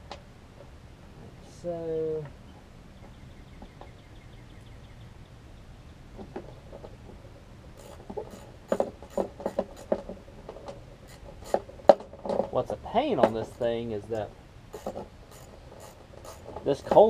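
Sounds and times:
hand tool and parts clicking: 13.2 - 17.0.

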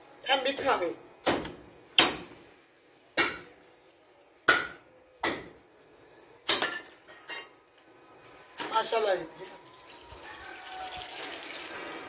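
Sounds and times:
cleaver chopping meat on wood: 1.2 - 2.3.

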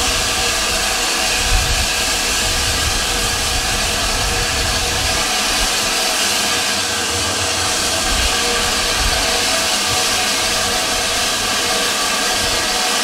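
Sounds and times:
steam venting hiss: 0.0 - 13.0
low rumble: 6.9 - 10.8.

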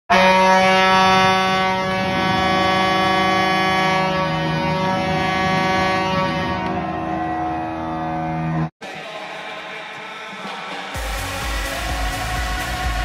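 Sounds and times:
horns blasting together: 0.1 - 8.7.

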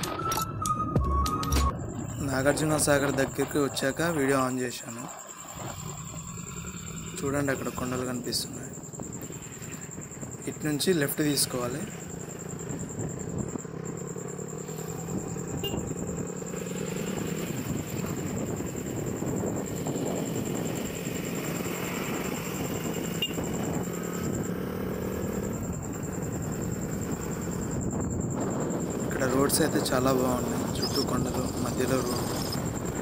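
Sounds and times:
wind and road noise: 0.0 - 33.0
motorcycle engine running: 11.8 - 33.0.

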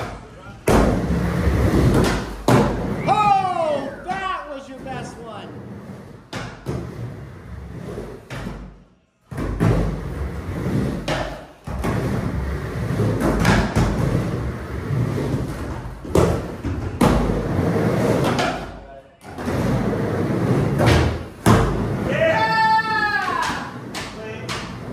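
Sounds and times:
skateboard wheels rolling on ramp: 9.3 - 18.6, 19.3 - 24.9.

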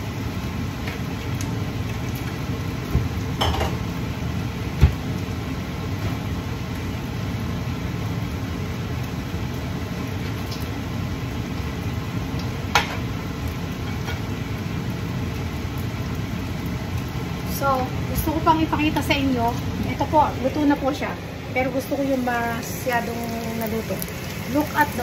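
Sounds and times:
range hood fan humming: 0.0 - 25.0
kitchenware clinking: 3.4 - 3.8.

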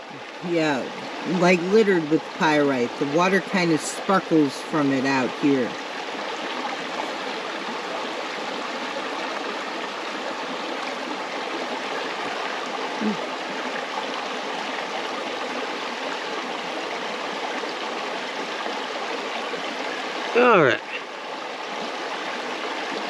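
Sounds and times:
river water rushing over rocks: 5.7 - 23.0
person murmuring: 20.4 - 21.0.

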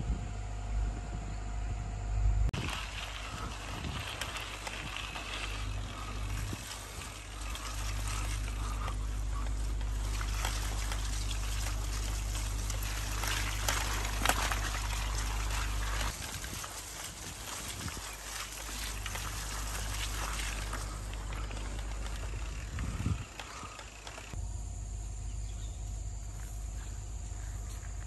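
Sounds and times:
wind rumbling on microphone: 0.0 - 24.4
footsteps on grass: 2.6 - 24.4.

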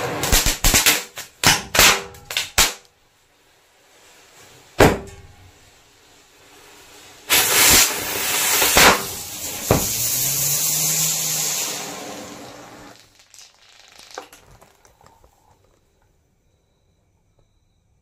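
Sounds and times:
firecracker bangs: 0.0 - 2.8, 4.8 - 5.6, 7.2 - 14.4
small firecracker pops: 0.2 - 2.9, 7.3 - 11.9
fizzing hiss of burning powder: 3.0 - 15.6.

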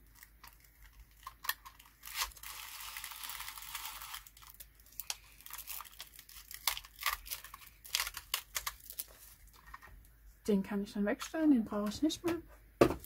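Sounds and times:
paper strip crackling hiss: 2.0 - 8.7.

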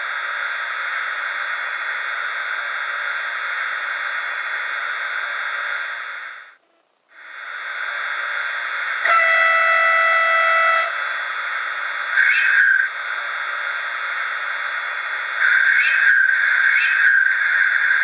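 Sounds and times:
locomotive horn: 9.0 - 11.0.

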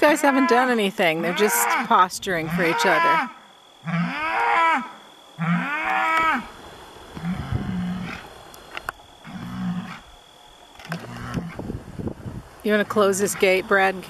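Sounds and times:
bulls bellowing: 0.0 - 8.4, 9.2 - 11.6.

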